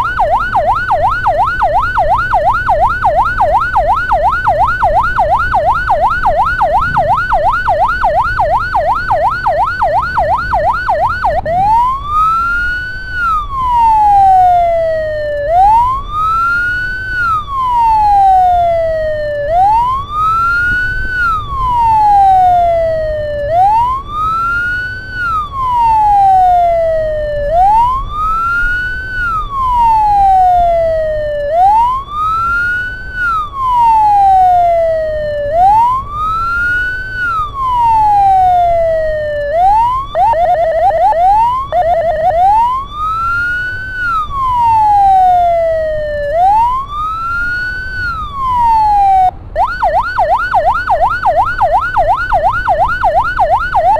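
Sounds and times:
ambulance siren: 0.0 - 53.9
road and engine rumble: 0.0 - 53.9.

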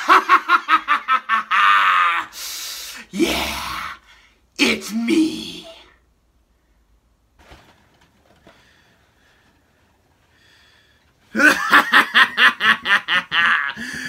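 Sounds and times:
man laughing theatrically: 0.0 - 2.3, 11.3 - 14.0
faint rustling: 6.5 - 11.4.

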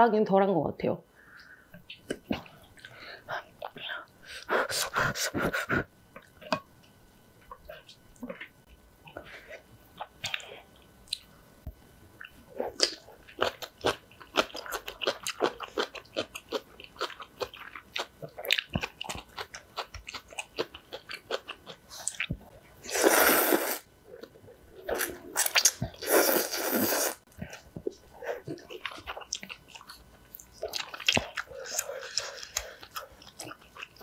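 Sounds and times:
chewing crunchy kimchi: 12.2 - 34.0
slurping noodles: 22.9 - 23.8, 25.0 - 27.2.

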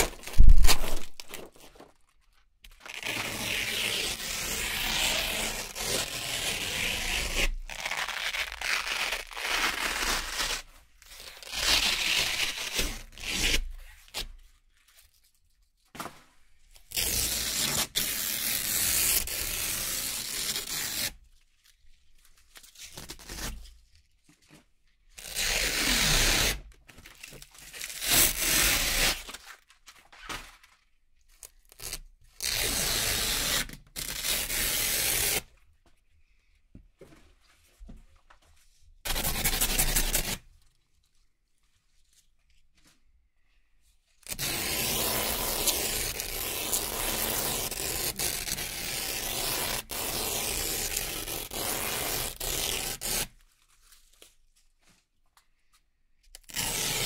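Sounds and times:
velcro ripping apart: 0.0 - 2.0, 2.8 - 10.7, 11.3 - 14.2, 44.3 - 53.3.

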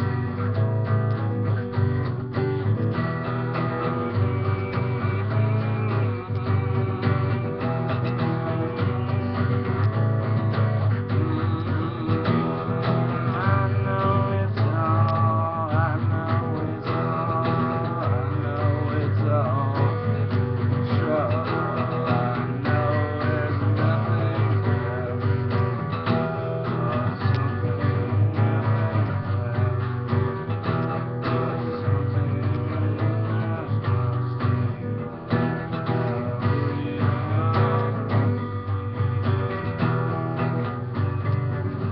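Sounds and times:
acoustic guitar strumming: 0.0 - 41.9.

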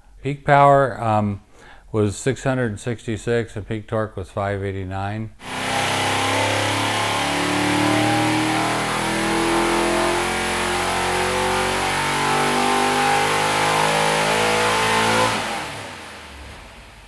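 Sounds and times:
engine running on dyno: 5.4 - 17.0.

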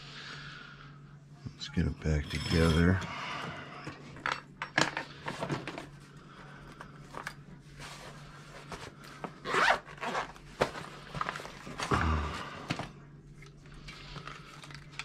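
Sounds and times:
rustles and clinks of tools: 2.2 - 3.1
zipper rasp: 9.4 - 10.4.

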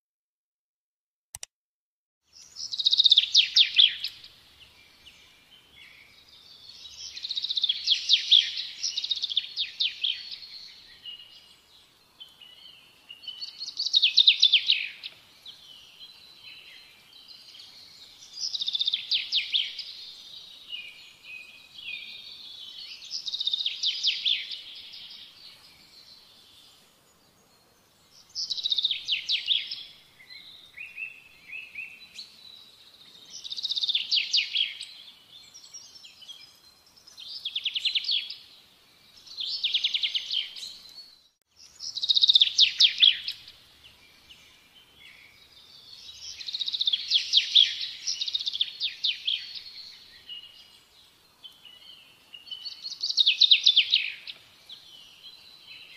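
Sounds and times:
songbird trilling: 2.4 - 4.4, 41.7 - 43.5.

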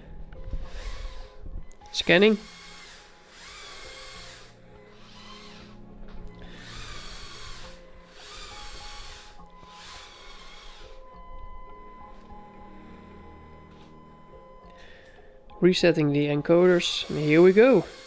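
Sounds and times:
toy crane motors whirring: 0.5 - 11.2, 16.6 - 18.0.

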